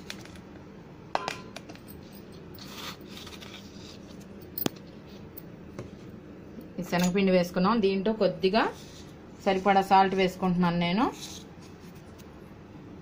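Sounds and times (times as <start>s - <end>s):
bowl knocking: 1.2s - 1.6s.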